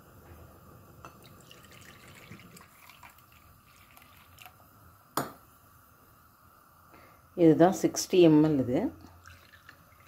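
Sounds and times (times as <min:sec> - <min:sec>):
liquid trickling into cup: 0:01.0 - 0:04.6, 0:09.0 - 0:10.0.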